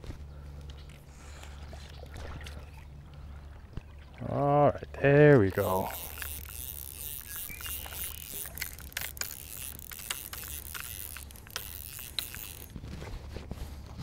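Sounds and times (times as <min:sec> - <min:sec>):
fly reel clicks and scrapes: 0:05.6 - 0:12.8.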